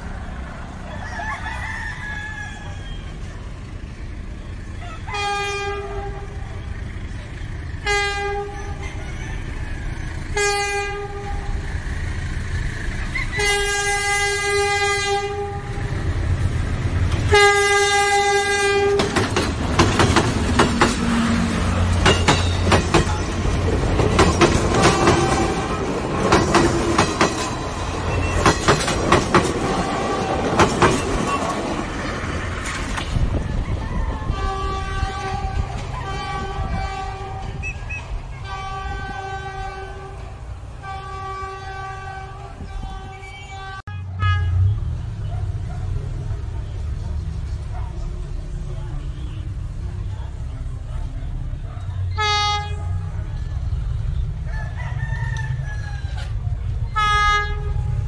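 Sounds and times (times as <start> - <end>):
locomotive horn blasts: 5.0 - 6.7, 7.8 - 8.9, 10.3 - 11.6, 13.4 - 16.0, 17.2 - 19.2, 24.6 - 26.0, 34.2 - 44.8, 52.2 - 53.2, 56.9 - 58.0
wheels clacking over rail joints: 10.1 - 43.6.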